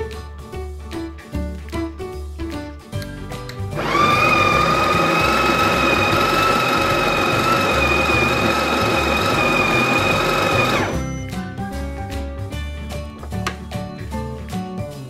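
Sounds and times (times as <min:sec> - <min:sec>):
background music: 0:00.0 - 0:15.0
coffee grinder whining: 0:03.8 - 0:11.2.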